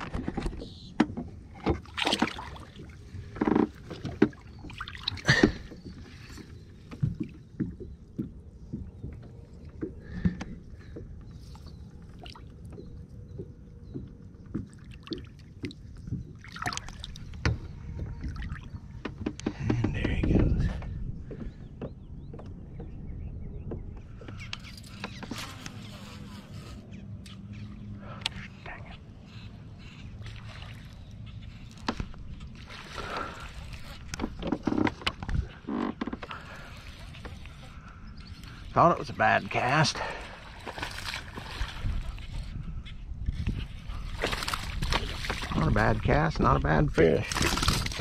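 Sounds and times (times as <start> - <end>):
shallow water splashing: 1.4 - 20.2, 29.3 - 42.6, 43.3 - 48.0.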